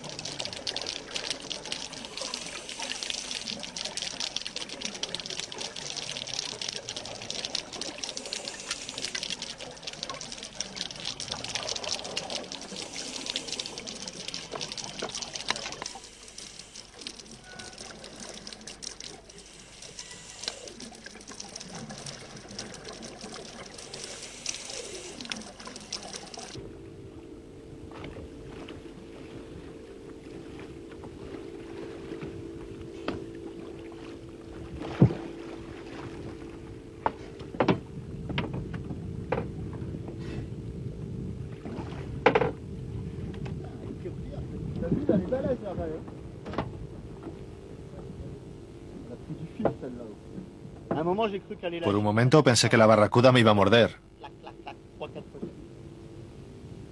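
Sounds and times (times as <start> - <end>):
underwater hiss and crackle: 0.0 - 26.6
water splashing: 0.0 - 26.6, 27.9 - 37.4
boat engine running: 26.6 - 51.2
knocks against boat: 34.9 - 35.2.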